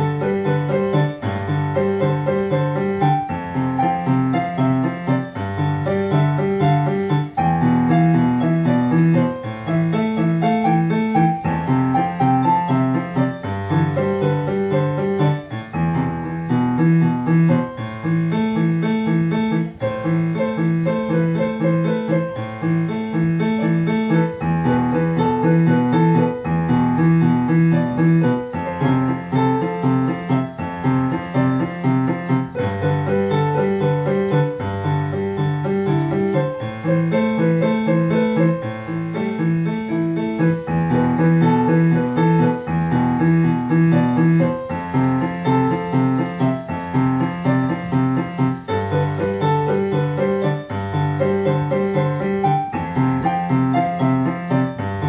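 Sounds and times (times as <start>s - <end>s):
solo piano: 0.0s - 55.0s.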